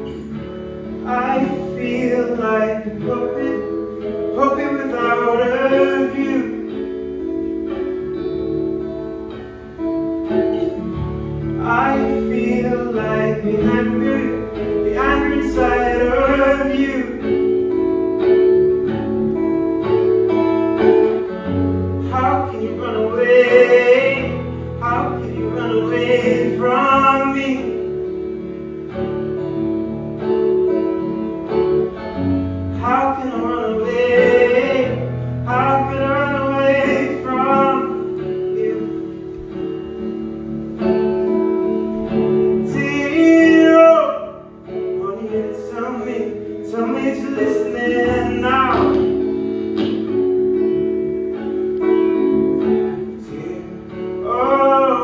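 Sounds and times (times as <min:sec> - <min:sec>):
electric guitar chords: 0:00.0 - 0:55.0
man singing: 0:00.9 - 0:07.1, 0:10.8 - 0:17.7, 0:22.0 - 0:28.0, 0:32.7 - 0:39.4, 0:42.1 - 0:50.1, 0:52.9 - 0:55.0.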